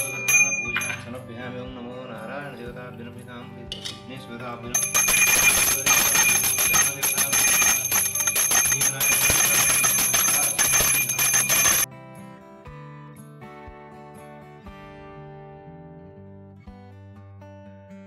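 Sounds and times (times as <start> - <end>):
hand bell ringing rapidly: 0.0 - 1.2, 4.8 - 11.9.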